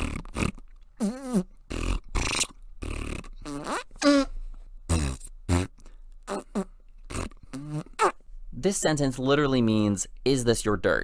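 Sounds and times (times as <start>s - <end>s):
fart-like sounds: 0.0s - 8.2s.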